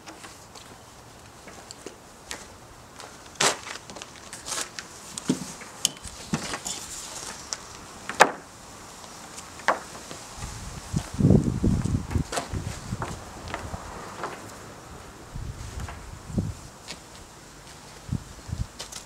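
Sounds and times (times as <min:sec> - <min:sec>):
straps rustling: 0:00.1 - 0:07.9.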